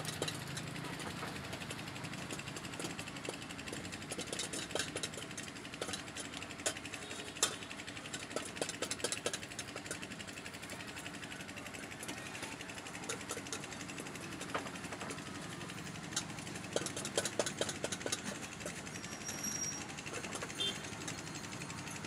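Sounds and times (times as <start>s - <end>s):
wooden press clicking and knocking: 0.0s - 10.1s, 12.0s - 18.8s
low engine-like hum: 0.0s - 22.0s
metal pots knocking: 2.2s - 10.1s, 13.0s - 18.9s.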